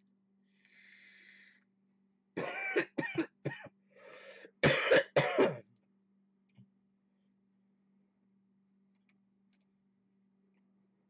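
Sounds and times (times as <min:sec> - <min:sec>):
soft breath: 0:00.5 - 0:01.7, 0:03.9 - 0:04.6
man coughing: 0:02.4 - 0:03.7, 0:04.6 - 0:05.6.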